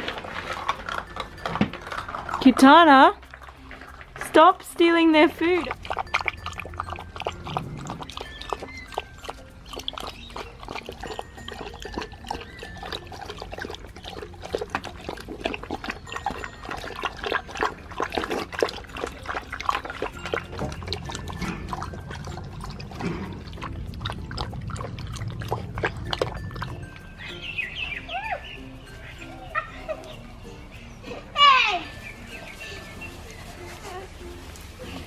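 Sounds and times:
dogs lapping water: 0:00.0 - 0:30.2
low rumble: 0:20.7 - 0:27.8.

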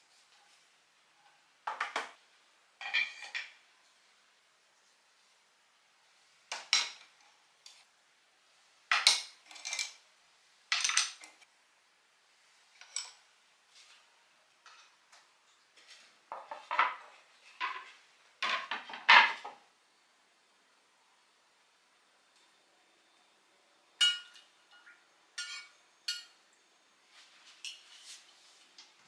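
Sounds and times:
wooden plates knocking together: 0:16.3 - 0:19.6
wooden utensils clacking: 0:16.3 - 0:19.6.

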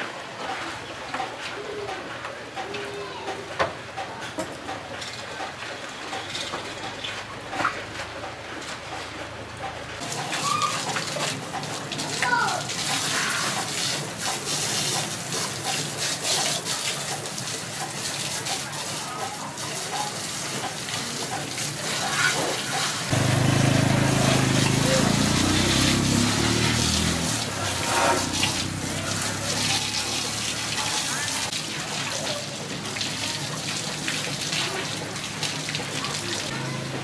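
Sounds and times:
hose water spraying on metal: 0:10.0 - 0:37.0.

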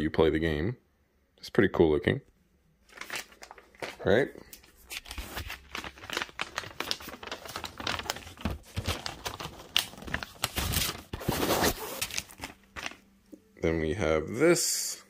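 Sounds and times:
paper crinkling and rustling: 0:02.9 - 0:13.1.

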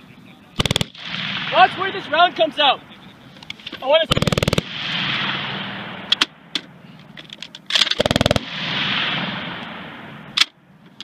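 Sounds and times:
machine gun automatic fire: 0:00.6 - 0:02.3, 0:04.0 - 0:06.3, 0:07.7 - 0:09.6
sharp single gunshot cracks: 0:00.6 - 0:02.4, 0:07.7 - 0:10.6
gunshot echo rolling: 0:00.6 - 0:10.9.

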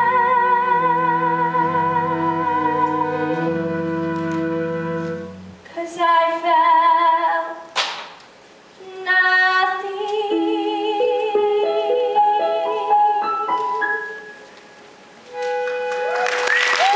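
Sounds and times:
girl singing with vibrato: 0:00.0 - 0:03.9, 0:05.7 - 0:07.7, 0:08.8 - 0:13.6
instrumental accompaniment: 0:00.0 - 0:05.6, 0:10.3 - 0:16.7.

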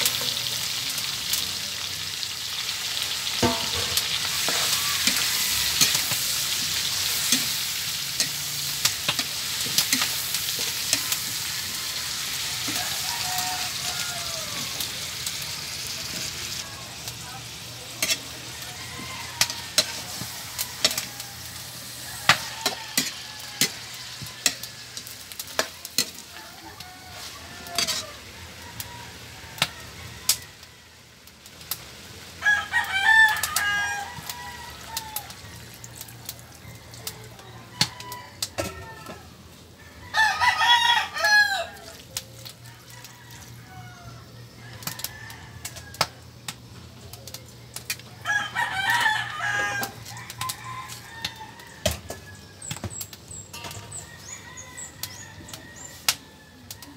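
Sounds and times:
faint frying sizzle: 0:00.0 - 0:56.9
metal spatula scraping wok: 0:03.0 - 0:12.8, 0:17.9 - 0:28.3, 0:53.4 - 0:54.1
rooster crowing: 0:03.0 - 0:15.5, 0:16.1 - 0:31.1, 0:32.4 - 0:46.4, 0:48.0 - 0:56.9.

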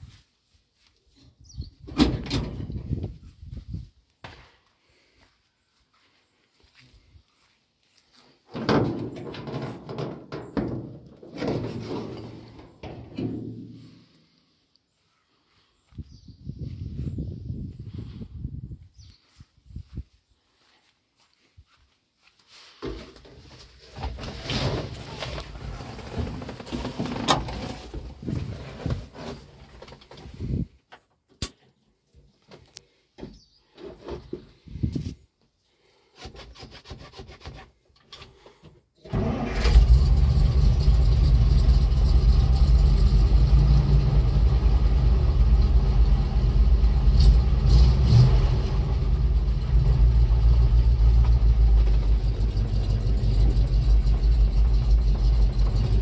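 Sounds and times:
knocks and scrapes in truck cab: 0:08.5 - 0:13.8, 0:22.8 - 0:30.6
truck engine starting and running: 0:08.6 - 0:14.4, 0:39.0 - 0:56.0.

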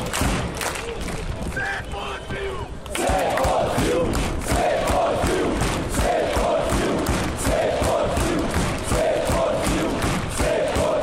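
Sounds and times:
crowd noise: 0:00.0 - 0:11.0
crowd chanting in unison: 0:02.4 - 0:11.0.

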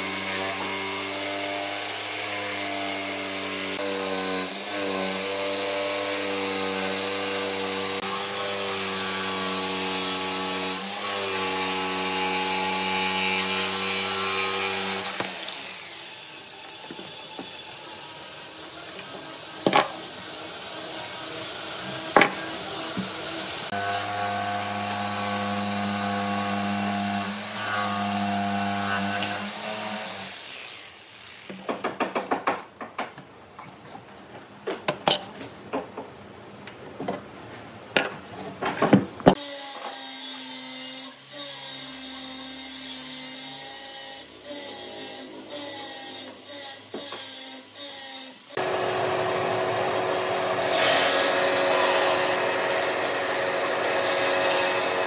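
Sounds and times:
power tool motor running: 0:48.6 - 0:55.0.

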